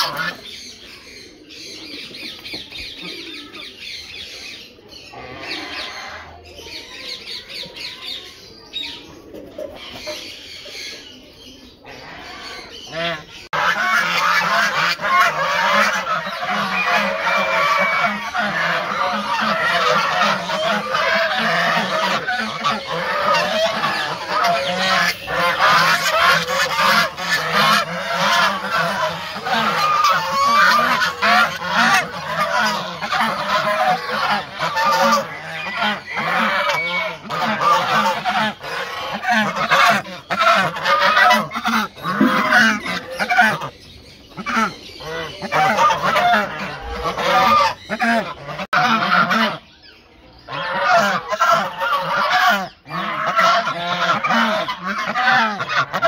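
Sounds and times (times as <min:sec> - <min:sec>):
geese honking: 0:00.0 - 0:00.6, 0:11.9 - 0:56.0.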